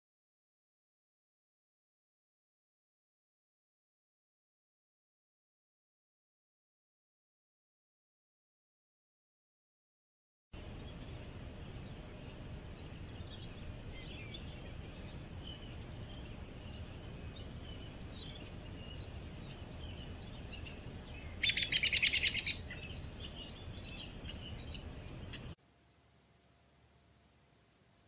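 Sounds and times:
small birds chirping: 10.6 - 25.6
low background hiss: 10.6 - 28.0
loud rapid bird trill: 11.8 - 25.6.

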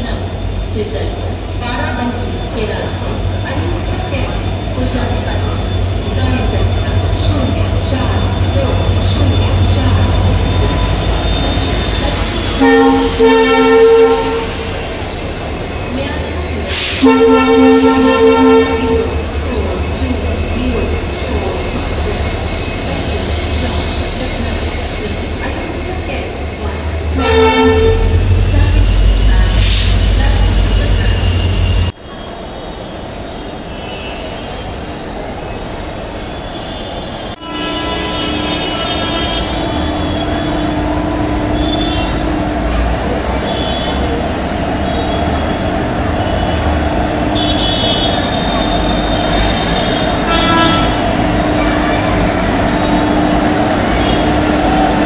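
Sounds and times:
train engine rumble: 0.0 - 55.0
high-pitched wheel squeal: 0.1 - 34.6, 36.2 - 55.0
locomotive horn blast: 12.4 - 14.8, 16.7 - 19.3, 27.2 - 31.9, 36.7 - 44.1, 46.3 - 55.0.

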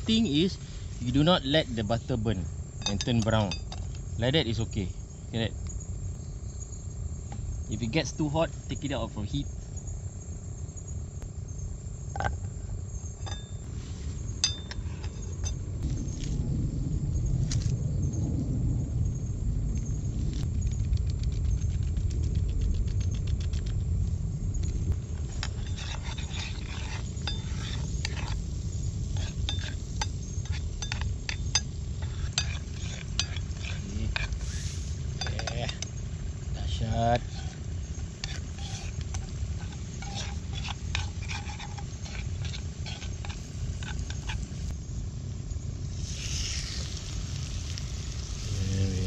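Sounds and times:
steady low rumble: 0.0 - 49.0
butter sizzling: 25.0 - 44.8, 45.8 - 49.0
metal spoon scraping a pan: 25.3 - 36.0, 37.2 - 44.7.

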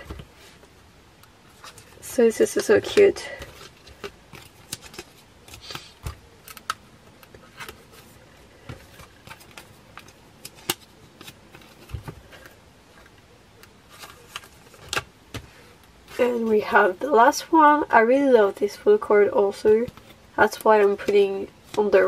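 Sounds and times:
plastic sleeves rustling and sliding: 1.4 - 13.2, 13.9 - 16.9.

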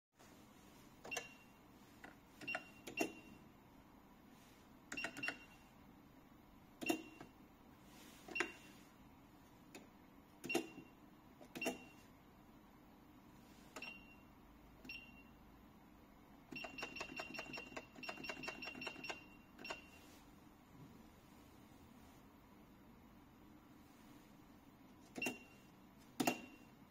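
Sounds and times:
cash register key click and beep: 1.1 - 1.6, 2.4 - 3.4, 4.9 - 5.6, 6.8 - 7.3, 8.3 - 8.8, 10.4 - 12.1, 13.7 - 14.2, 16.5 - 20.0, 25.1 - 26.7.

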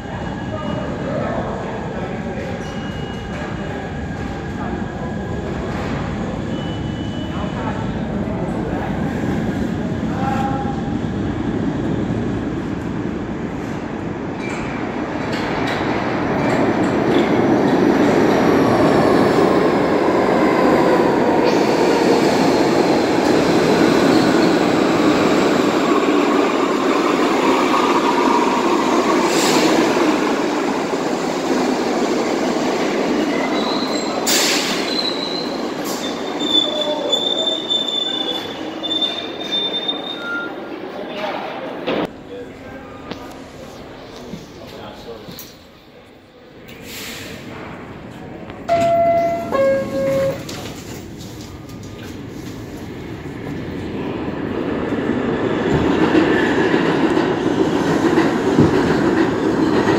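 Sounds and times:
train wheels rumbling on rails: 46.8 - 59.9.

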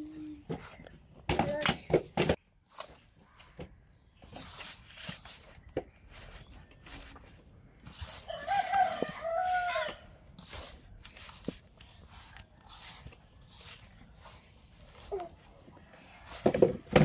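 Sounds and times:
rooster crowing: 8.3 - 10.1.

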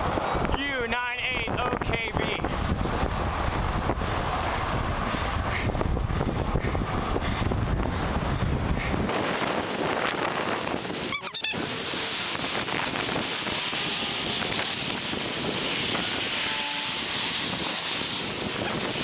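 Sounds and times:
passing traffic: 0.0 - 19.0
wind buffeting microphone: 1.2 - 19.0
high warbling sound: 10.9 - 15.8.

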